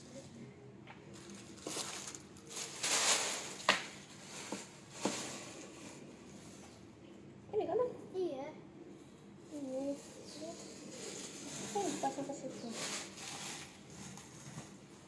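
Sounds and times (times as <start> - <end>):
plastic packaging crinkling: 1.1 - 6.0, 10.2 - 14.9.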